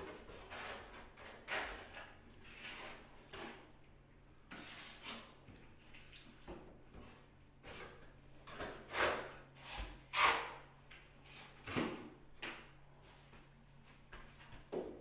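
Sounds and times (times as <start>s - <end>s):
trowel scraping wall: 0.0s - 3.7s, 4.5s - 5.4s, 7.6s - 10.6s.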